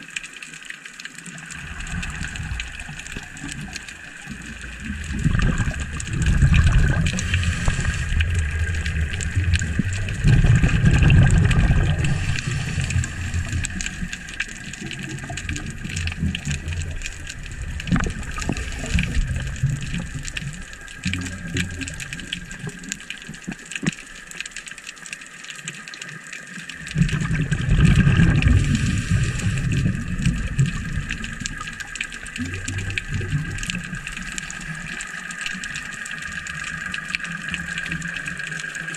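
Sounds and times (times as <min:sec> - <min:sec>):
underwater rushing water surges: 0:00.0 - 0:38.9
faint steady hum: 0:01.2 - 0:25.7.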